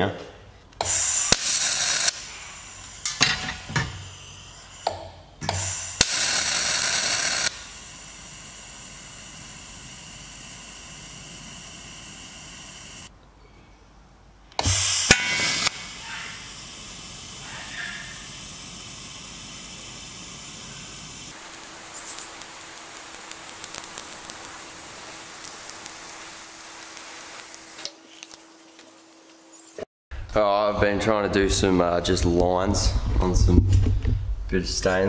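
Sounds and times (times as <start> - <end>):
welding arc hissing buzz: 0.8 - 13.1, 14.6 - 29.9.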